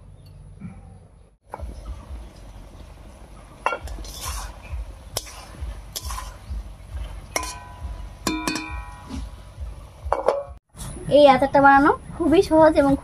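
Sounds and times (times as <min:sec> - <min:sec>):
spatula scraping a metal wok: 0:03.8 - 0:06.5
ringing metallic clang: 0:07.4 - 0:09.2.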